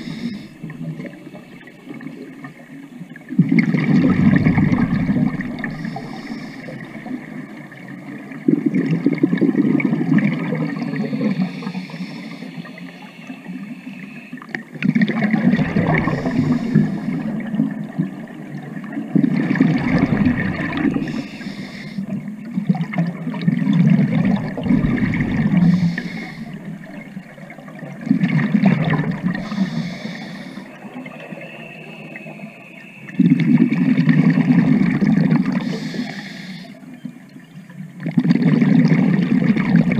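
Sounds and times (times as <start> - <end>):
underwater regulator breathing bubbles: 3.5 - 7.2, 15.0 - 17.6, 19.2 - 22.2, 23.6 - 27.2, 28.2 - 30.7.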